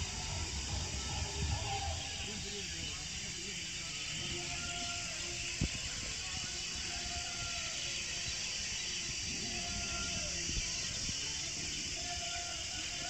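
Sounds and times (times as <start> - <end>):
wind on microphone: 0.0 - 2.6
faint distant tones: 0.0 - 7.6
steady high hiss: 0.0 - 13.0.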